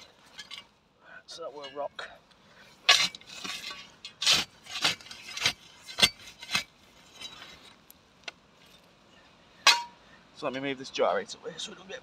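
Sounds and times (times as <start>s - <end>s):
shovel scraping stony soil: 2.7s - 7.8s.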